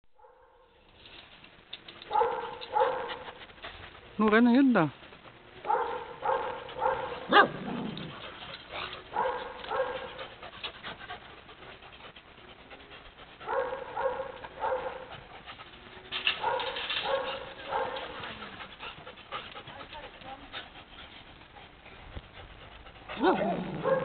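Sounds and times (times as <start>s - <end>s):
dogs barking: 2.1s - 3.4s, 5.6s - 8.2s, 8.9s - 10.4s, 13.4s - 15.2s, 16.3s - 18.7s, 23.1s - 24.0s.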